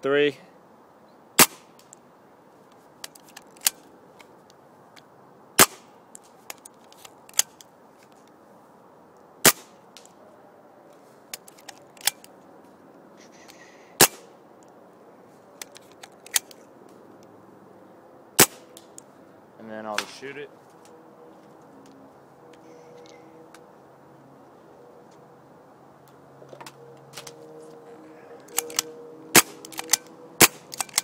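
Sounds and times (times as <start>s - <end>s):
paintball marker shots: 14.0s - 14.3s, 18.4s - 19.0s, 29.4s - 31.0s.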